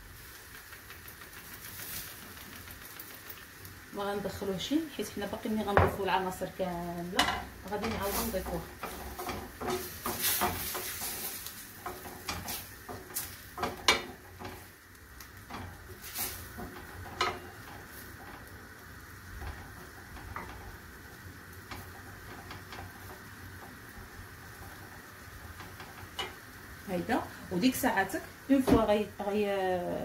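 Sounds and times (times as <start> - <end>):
shrimp sizzling in a frying pan: 0.0 - 30.0
spatula scraping and knocking pan: 7.0 - 14.7, 15.4 - 18.5, 19.3 - 26.5.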